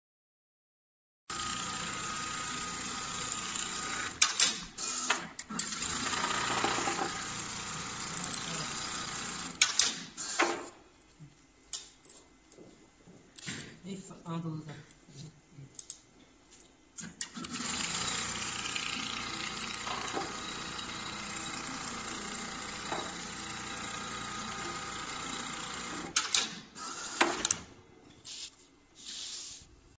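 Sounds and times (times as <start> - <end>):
sewing machine running: 1.3 - 9.6, 17.3 - 27.5.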